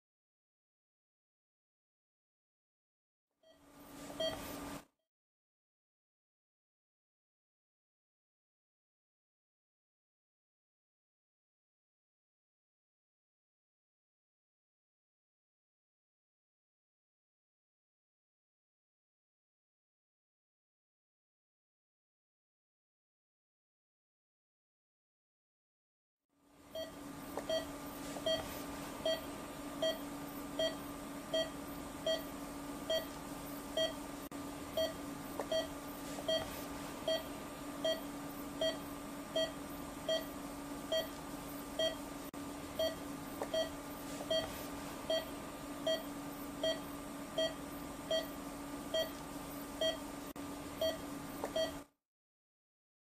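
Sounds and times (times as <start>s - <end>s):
patient monitor beeping: 3.4s - 4.6s, 26.7s - 42.1s, 42.8s - 50.2s, 50.8s - 51.9s
steady hum: 26.5s - 51.9s.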